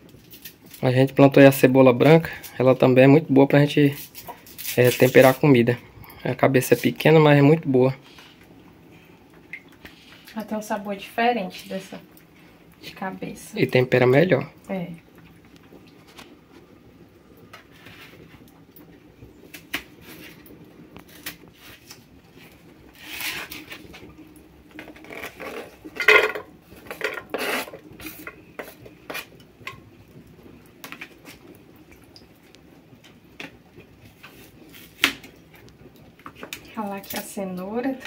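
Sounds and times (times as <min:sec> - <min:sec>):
dishes clattering: 0:25.9 - 0:27.8
dishes and utensils clinking: 0:26.0 - 0:27.4.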